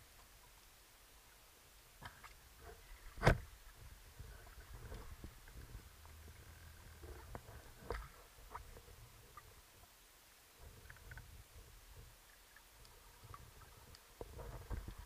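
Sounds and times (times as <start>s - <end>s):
low rumble of water: 0.0s - 15.0s
underwater clicks and knocks: 3.1s - 3.5s, 4.5s - 9.5s, 12.8s - 15.0s.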